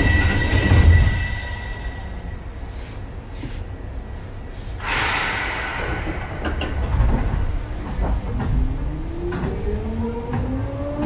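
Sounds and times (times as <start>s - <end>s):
train car clunks: 0.0s - 3.6s, 4.8s - 11.0s
compressed air hiss: 4.6s - 8.3s
traction motors whine rising: 4.9s - 11.0s.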